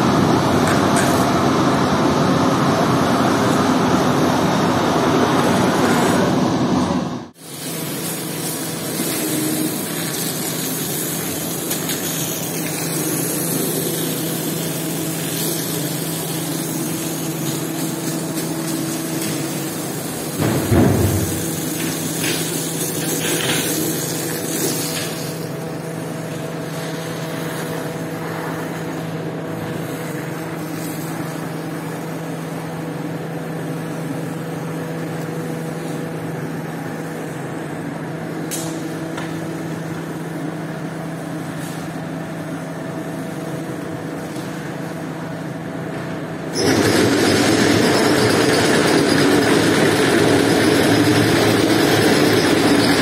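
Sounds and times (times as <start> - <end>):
machine motor humming: 7.8 - 23.5.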